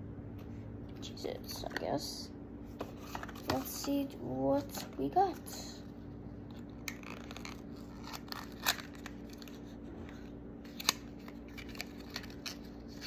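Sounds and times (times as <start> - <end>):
plastic packaging clicks and crinkling: 10.7 - 13.0.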